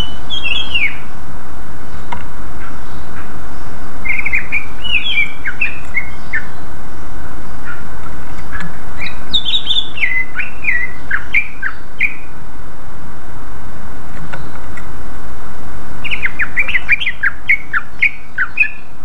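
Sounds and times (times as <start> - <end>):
bird whistling song: 0.0 - 1.1, 4.0 - 6.7, 8.5 - 12.3, 16.0 - 18.9
steady background hiss: 0.0 - 19.0.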